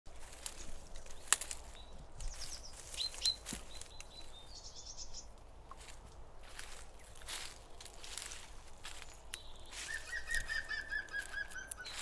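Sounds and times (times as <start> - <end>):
leaves and twigs crackling underfoot: 0.1 - 12.0
birds whistling and chirping: 1.2 - 5.3, 9.0 - 12.0.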